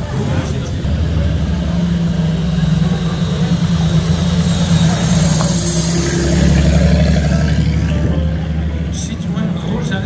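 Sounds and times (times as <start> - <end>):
racing car engine rumbling: 0.0 - 10.0.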